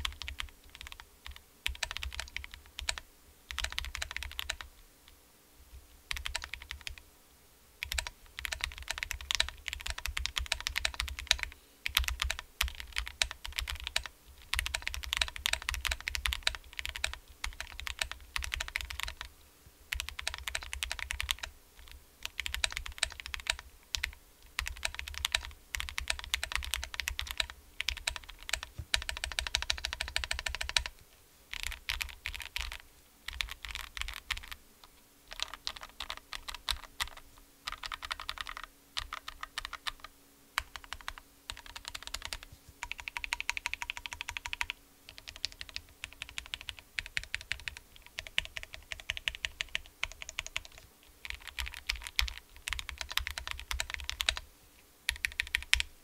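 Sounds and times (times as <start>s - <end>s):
mechanical keyboard typing: 0.0s - 4.7s, 6.1s - 7.0s, 7.8s - 19.3s, 19.9s - 30.9s, 31.5s - 34.6s, 35.3s - 54.4s, 55.1s - 55.9s.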